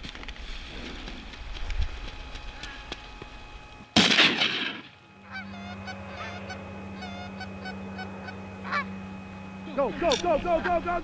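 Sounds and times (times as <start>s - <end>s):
geese honking: 5.1s - 11.0s.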